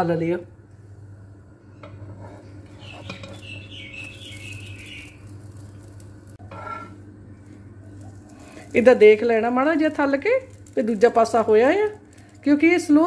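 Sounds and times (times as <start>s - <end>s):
steady low hum: 0.0s - 13.0s
spatula scraping frying pan: 1.8s - 3.6s, 6.3s - 7.0s
high wavering chirping: 2.7s - 6.0s.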